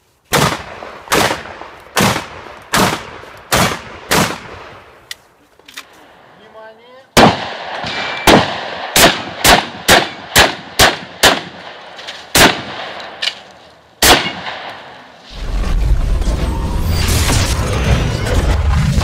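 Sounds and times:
shotgun shots: 0:00.3 - 0:04.9, 0:07.2 - 0:13.3, 0:14.0 - 0:15.1.

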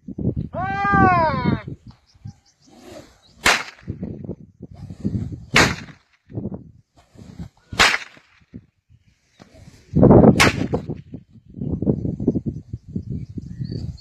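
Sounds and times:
rope whip cracking: 0:03.4 - 0:04.0, 0:05.5 - 0:06.2, 0:07.0 - 0:08.6, 0:10.3 - 0:11.0.

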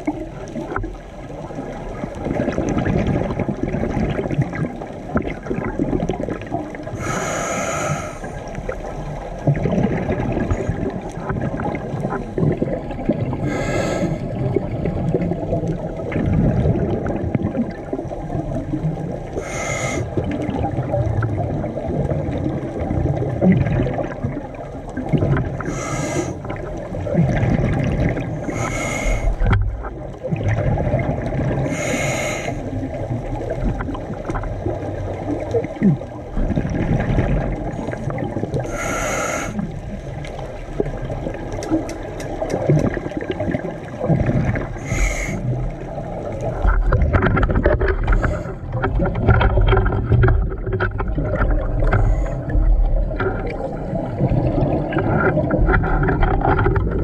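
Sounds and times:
exhaled bubbles rumbling: 0:00.0 - 0:57.0
hissing regulator inhalations: 0:07.0 - 0:08.4, 0:13.4 - 0:14.3, 0:19.4 - 0:20.1, 0:25.6 - 0:26.4, 0:28.5 - 0:29.4, 0:31.7 - 0:32.6, 0:38.7 - 0:39.6, 0:44.8 - 0:45.5.

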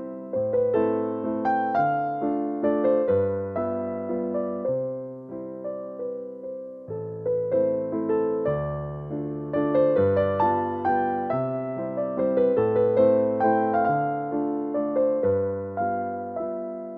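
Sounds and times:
gentle piano music: 0:00.0 - 0:16.9.

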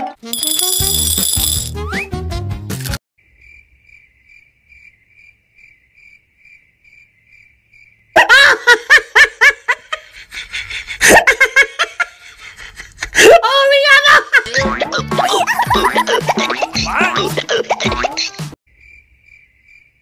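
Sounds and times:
cricket chirping: 0:03.2 - 0:08.2, 0:18.7 - 0:20.0
loud laughter: 0:08.2 - 0:13.4, 0:14.0 - 0:18.4.

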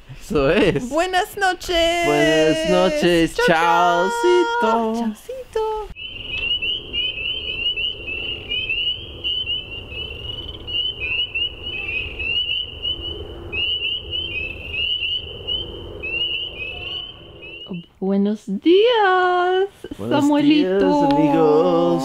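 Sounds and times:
low steady rumble: 0:00.6 - 0:17.7
frogs calling: 0:02.1 - 0:05.2, 0:06.0 - 0:17.9.

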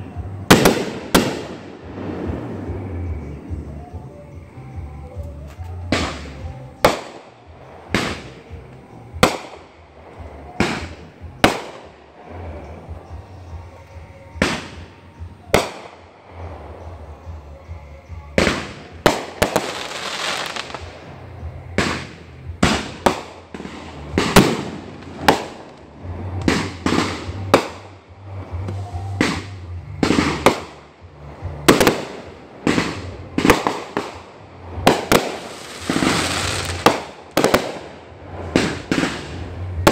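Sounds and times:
firework bangs: 0:00.5 - 0:03.6, 0:05.9 - 0:08.6, 0:09.2 - 0:12.6, 0:14.4 - 0:16.8, 0:18.4 - 0:39.9
firework crackling hiss: 0:18.4 - 0:39.9.

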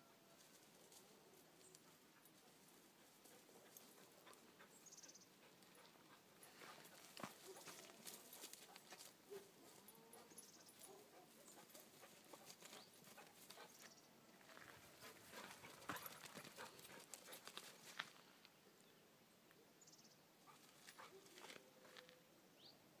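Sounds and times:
footsteps on stony grass: 0:05.8 - 0:18.4.

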